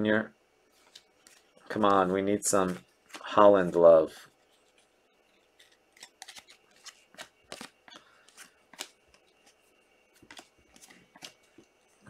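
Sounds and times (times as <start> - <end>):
trading cards snapping and swishing: 5.6 - 9.2.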